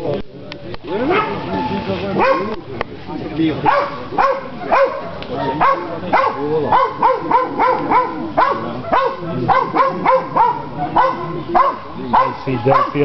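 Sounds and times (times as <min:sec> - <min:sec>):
dog barking: 0:01.1 - 0:01.4, 0:02.2 - 0:02.6, 0:03.6 - 0:13.0.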